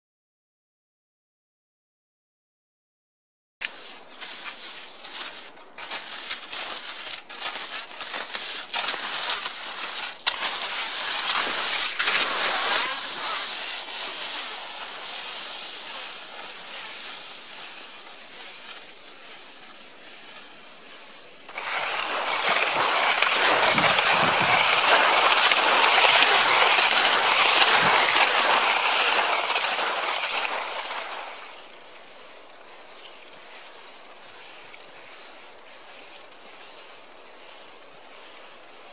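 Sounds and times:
clicks and crunches: 3.6s - 14.5s, 21.5s - 31.8s
skis sliding over snow: 3.6s - 38.9s.

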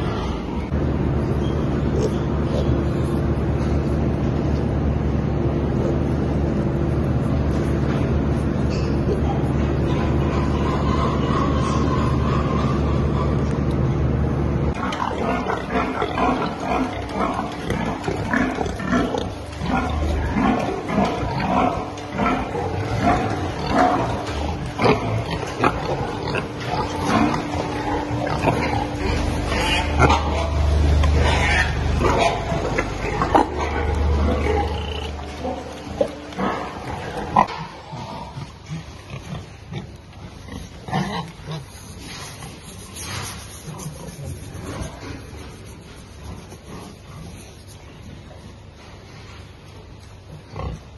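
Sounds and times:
steady low hum: 0.0s - 50.9s
pigs squealing and grunting: 8.7s - 13.9s, 14.7s - 45.7s.

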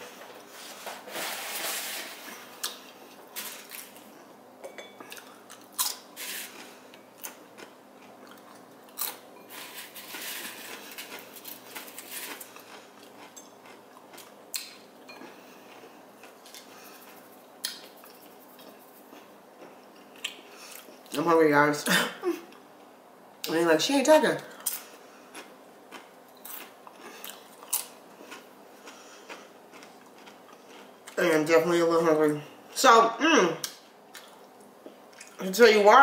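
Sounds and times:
chewing and crunching: 5.0s - 21.2s, 24.6s - 31.3s, 33.6s - 35.4s.

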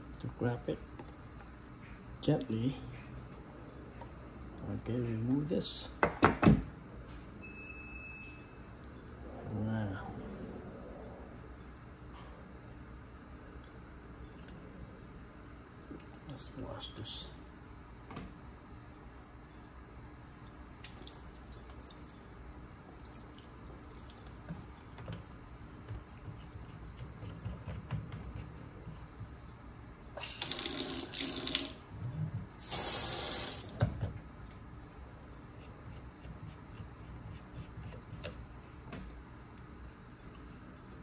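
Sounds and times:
water splashing into sink: 30.2s - 31.8s.

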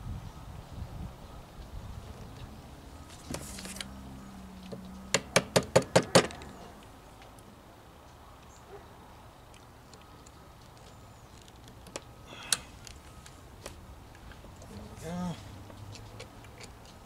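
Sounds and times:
handling rustle: 2.1s - 4.0s.

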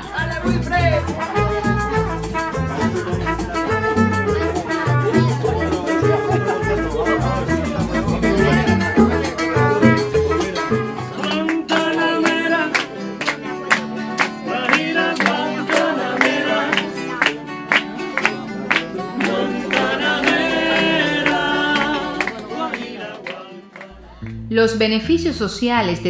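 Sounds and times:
acoustic guitars strumming: 0.0s - 26.0s
person singing: 4.4s - 17.3s, 19.0s - 24.5s.

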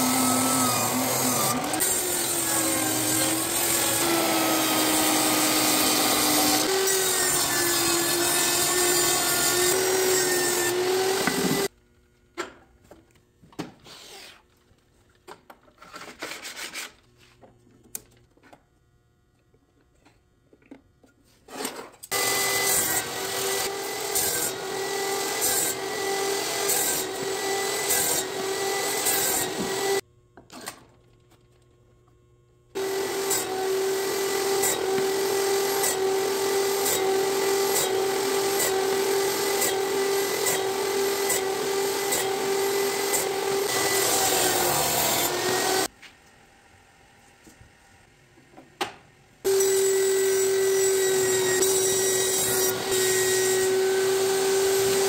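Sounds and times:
table saw cutting wood: 0.0s - 11.7s, 21.5s - 30.0s, 32.8s - 45.9s, 49.4s - 55.0s.

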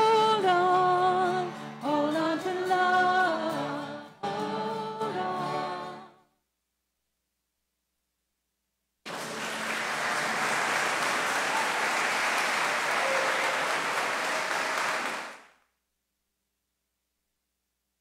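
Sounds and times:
congregation applauding: 9.1s - 15.6s.

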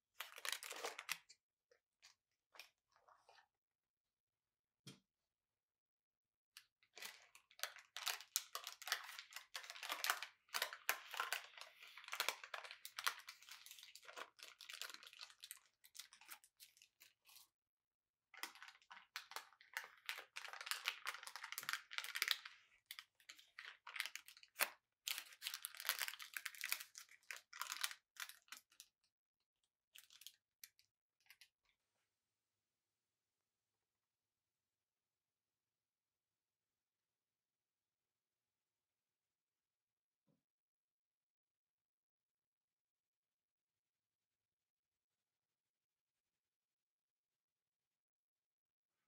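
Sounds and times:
parchment paper crinkling and tearing: 0.2s - 1.3s, 7.0s - 17.4s, 18.4s - 28.8s.

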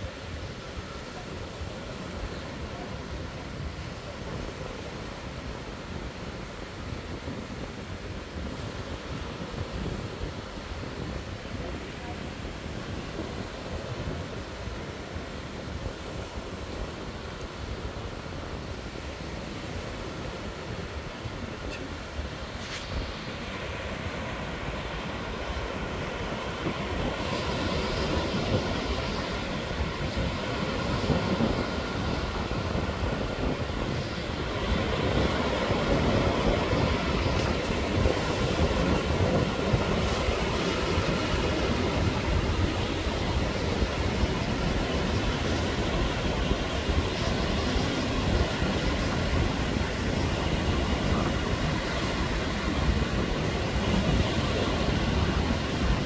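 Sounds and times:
surf breaking on beach: 0.0s - 56.0s
wind rumbling on microphone: 0.0s - 56.0s.

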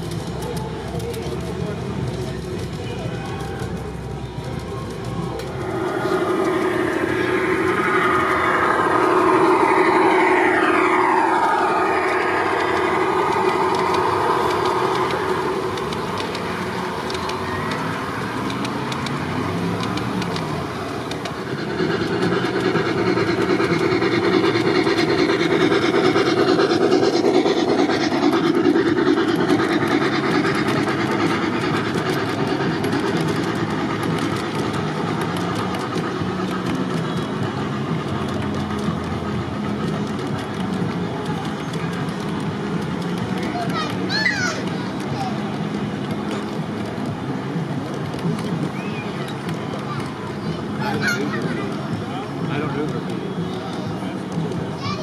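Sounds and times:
model train motor hum: 0.0s - 55.0s
wheels rolling on rails: 0.0s - 55.0s
gliding high tones: 4.6s - 40.8s.

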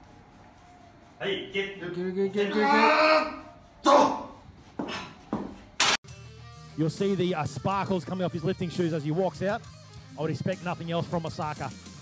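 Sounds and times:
short sharp shouts: 2.4s - 4.4s.

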